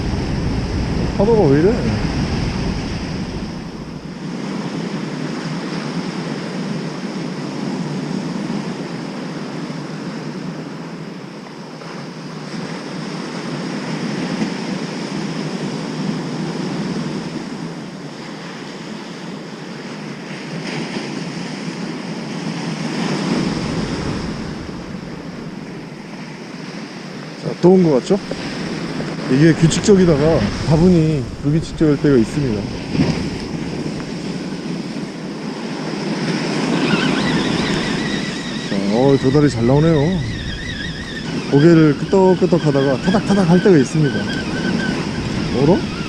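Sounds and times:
heavy surf breaking on shore: 0.0 - 46.0.

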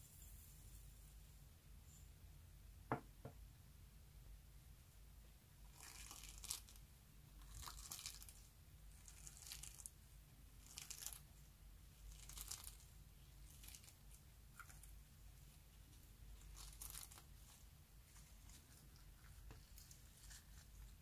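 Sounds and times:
sequins crunching in slime: 7.4 - 8.4, 10.6 - 11.2, 12.0 - 12.8, 16.4 - 17.4.

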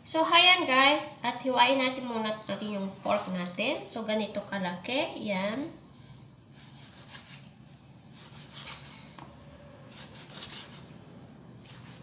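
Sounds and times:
knife slicing on cutting board: 6.5 - 7.5, 8.1 - 8.9, 9.9 - 11.0, 11.6 - 12.0.

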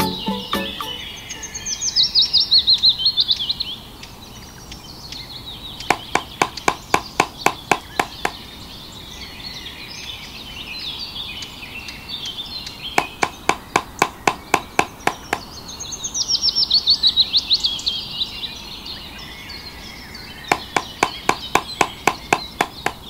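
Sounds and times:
bird chirping and trilling: 0.0 - 3.6, 19.2 - 23.0
sharp wooden taps: 5.9 - 8.4, 13.0 - 15.5, 20.5 - 23.0.

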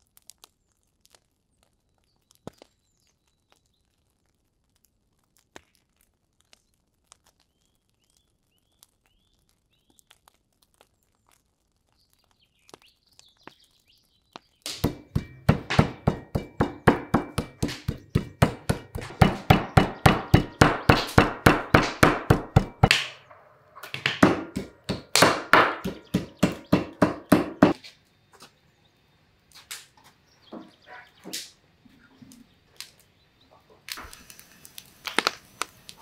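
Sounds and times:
meat mallet pounding on wooden board: 14.7 - 23.2, 23.9 - 27.8.

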